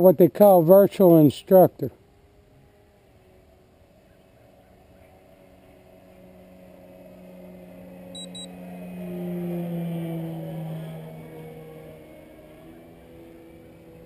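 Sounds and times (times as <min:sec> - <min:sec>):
model plane motor drone: 0:00.6 - 0:14.0
short electronic beeps: 0:08.1 - 0:08.5.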